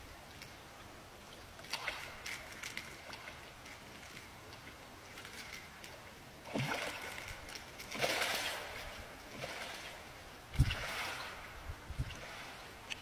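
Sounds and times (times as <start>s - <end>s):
fish splashing in water: 6.4s - 11.5s.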